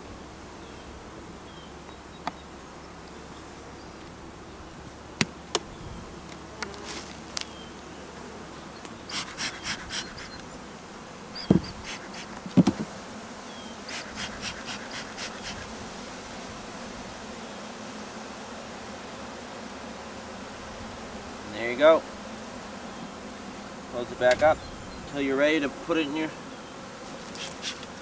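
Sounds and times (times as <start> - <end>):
bee smoker puffing: 0.0 - 28.0
honeybees buzzing: 0.0 - 28.0
loud thumps: 11.4 - 11.8, 12.4 - 12.9.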